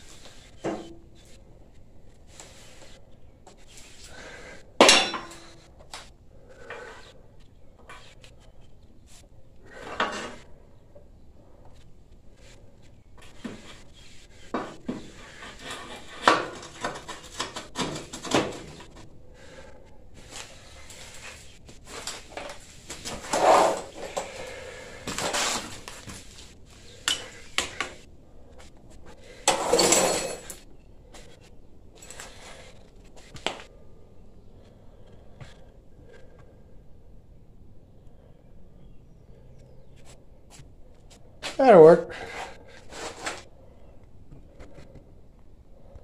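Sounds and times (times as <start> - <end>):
metal scraping: 15.0 - 19.0, 21.0 - 25.7.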